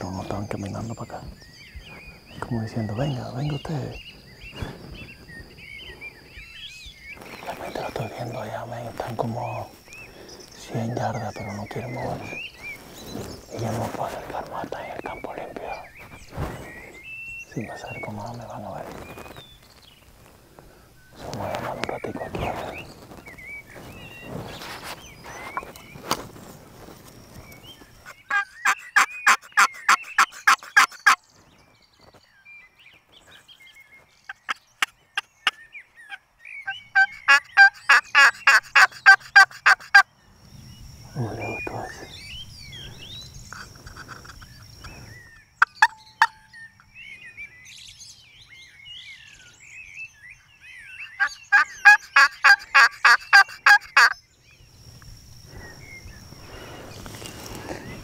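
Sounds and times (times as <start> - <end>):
turkey call yelps: 28.1 - 31.2, 34.3 - 40.0, 51.0 - 54.2.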